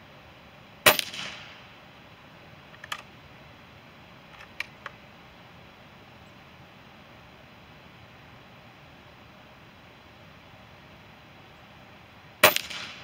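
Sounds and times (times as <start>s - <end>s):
air rifle shot: 0.8s - 1.7s, 12.4s - 13.0s
rifle bolt clicks: 2.8s - 3.1s.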